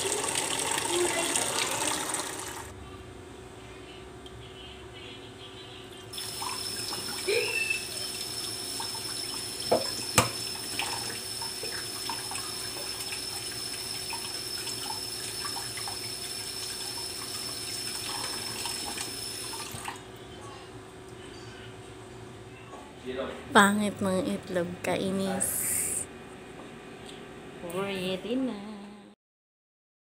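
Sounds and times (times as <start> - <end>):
kitchen tap running into pot: 0.0 - 2.7, 6.2 - 20.0.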